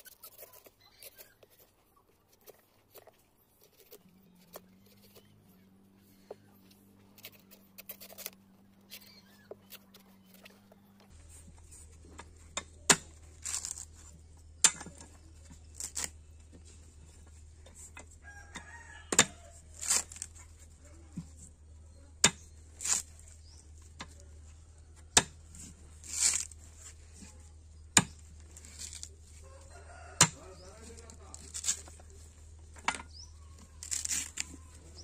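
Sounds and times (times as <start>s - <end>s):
knife chopping coconut husk: 18.5s - 21.4s, 22.2s - 24.3s, 25.0s - 29.2s, 29.8s - 32.2s, 33.6s - 35.0s.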